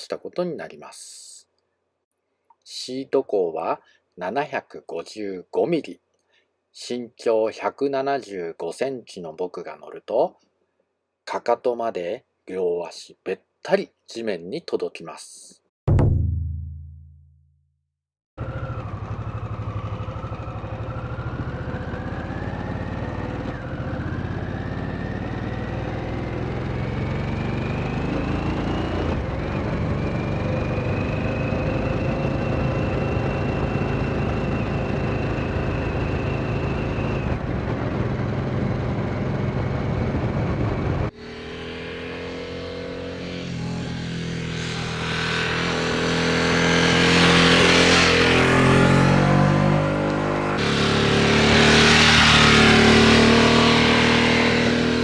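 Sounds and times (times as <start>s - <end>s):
motorcycle engine accelerating: 18.4s - 55.0s
motorcycle passing by: 18.4s - 55.0s.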